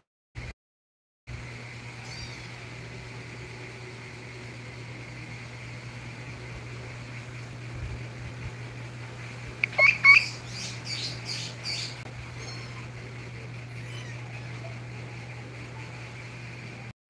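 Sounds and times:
mouse squeaking: 2.0s - 2.6s, 9.6s - 12.9s, 13.7s - 14.8s.

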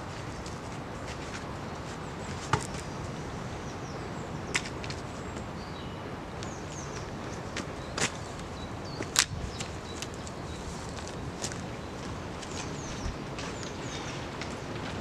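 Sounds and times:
steady outdoor hiss: 0.0s - 15.0s
small birds chirping: 1.6s - 14.9s.

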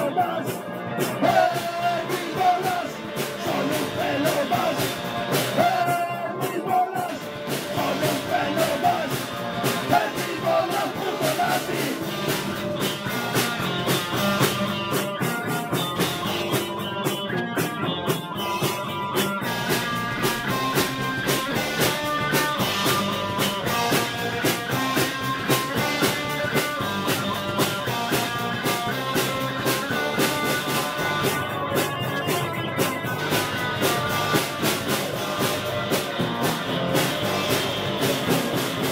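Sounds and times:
drum kit with cymbals: 0.0s - 38.9s
electric bass: 0.0s - 38.9s
electric guitar: 0.0s - 38.9s.

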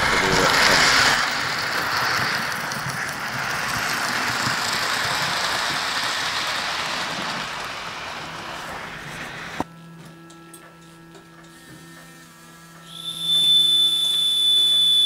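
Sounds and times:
model steam locomotive running: 0.0s - 9.6s, 12.8s - 15.0s.

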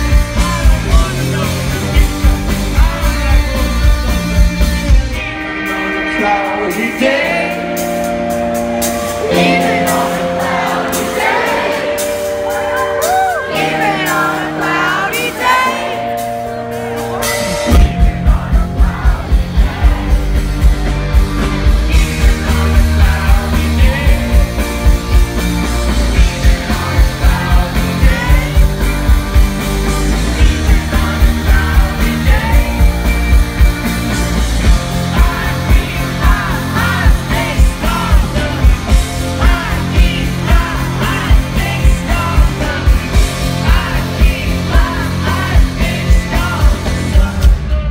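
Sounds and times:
man singing: 0.0s - 4.2s, 5.1s - 8.0s, 21.9s - 25.2s, 26.1s - 33.3s, 34.6s - 47.9s
live rock band playing: 0.0s - 47.9s.

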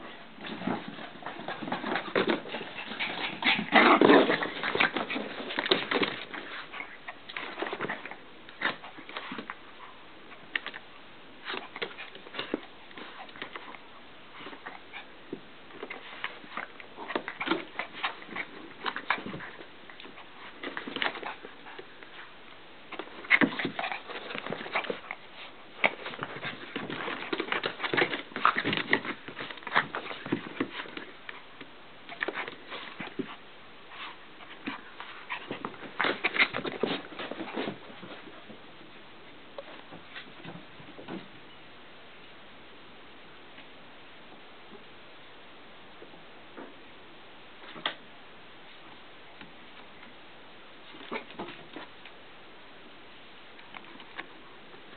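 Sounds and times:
dogs scuffling in bedding: 0.0s - 9.6s, 15.7s - 31.5s, 32.1s - 38.6s.

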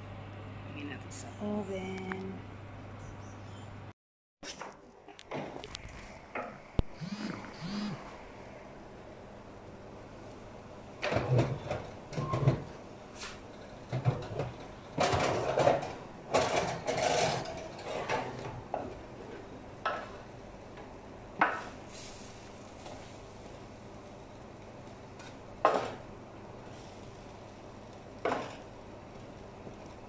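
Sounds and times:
metal tray clattering and scraping: 13.9s - 18.6s.

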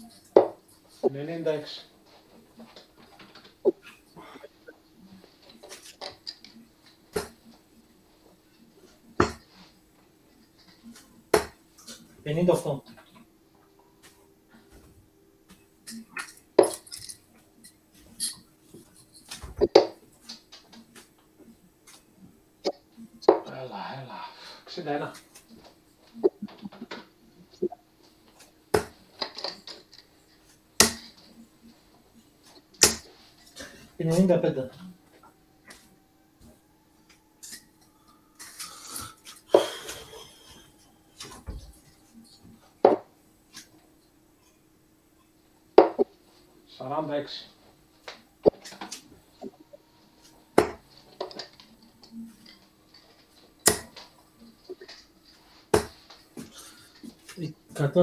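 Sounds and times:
darts striking dartboard: 50.6s - 50.8s.

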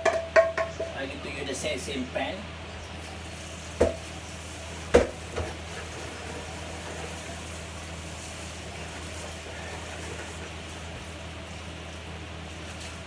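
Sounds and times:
wok clanking against sink: 0.0s - 0.9s
low hum and hiss: 0.0s - 13.0s.

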